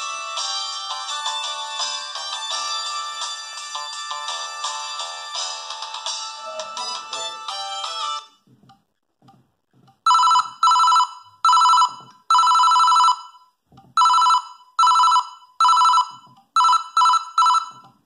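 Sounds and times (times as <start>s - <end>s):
phone ringtone two-tone trill: 10.1s - 13.4s, 14.0s - 17.8s.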